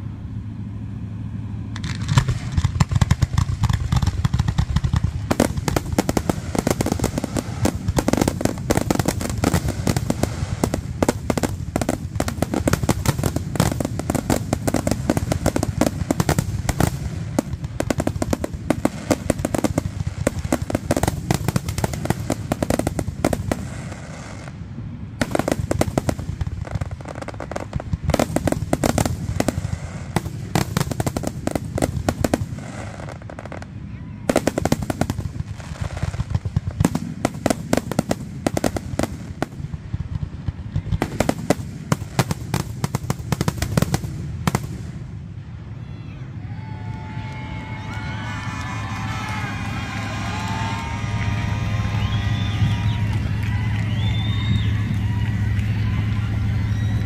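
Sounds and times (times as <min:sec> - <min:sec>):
fireworks bursting and crackling: 0:01.6 - 0:45.7, 0:47.3 - 0:57.0
deep rumble: 0:48.9 - 0:57.0.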